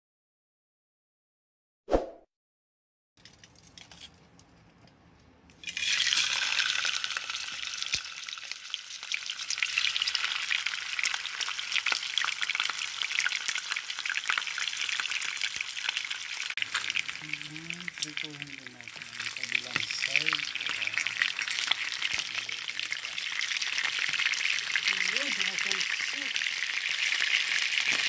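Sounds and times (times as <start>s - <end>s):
fish sizzling in hot oil: 5.6s - 28.0s.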